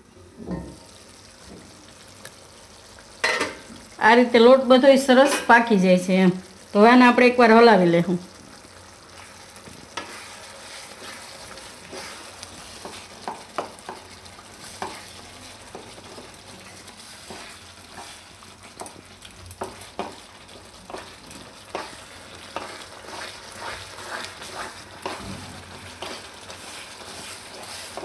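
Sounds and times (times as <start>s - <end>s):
food hissing while cooking: 8.3s - 28.0s
spatula scraping a pan: 9.9s - 18.9s, 19.6s - 28.0s.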